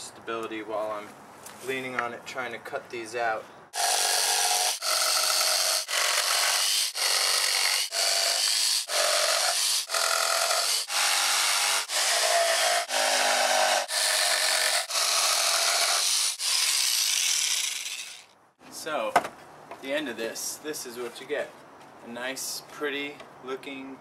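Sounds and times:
jigsaw cutting wood: 3.8s - 18.3s.

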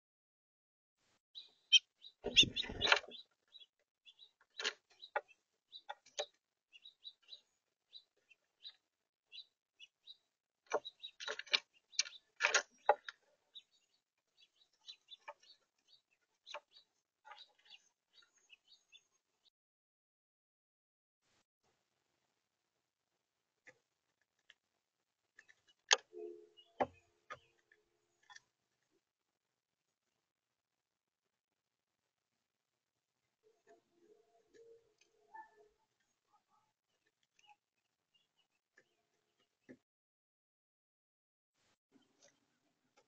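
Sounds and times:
faint bird chirps: 1.4s - 19.2s, 33.4s - 39.7s.

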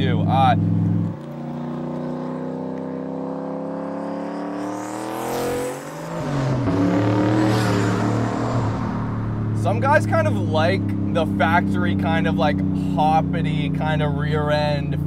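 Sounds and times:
car engine accelerating past: 0.6s - 9.8s.

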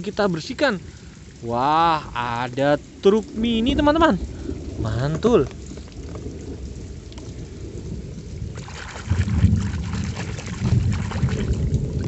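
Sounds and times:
puddle water splashing: 8.4s - 12.0s.

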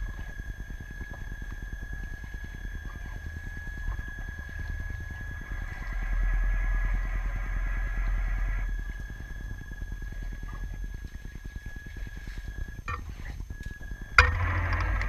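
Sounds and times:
motor high whine: 0.0s - 15.0s
propeller churning water: 0.0s - 15.0s.

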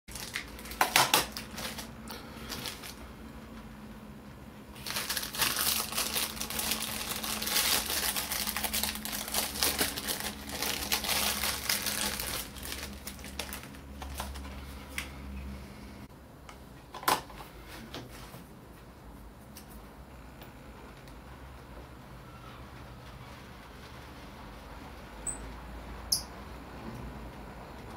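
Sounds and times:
paper crinkling and rustling: 0.1s - 3.1s, 4.8s - 15.1s.

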